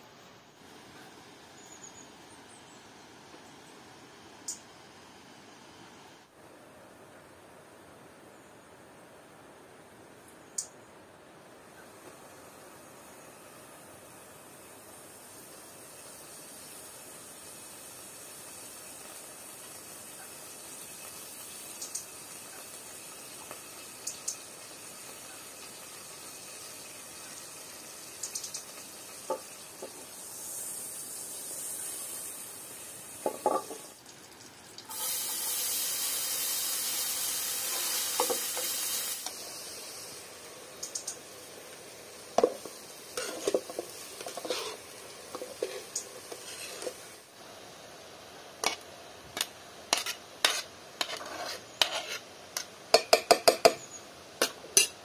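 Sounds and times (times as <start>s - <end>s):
loud steady hiss: 0.0s - 55.0s
metal pots clinking: 33.2s - 33.9s
metal ladle scraping a pot: 43.2s - 47.0s, 49.9s - 52.2s.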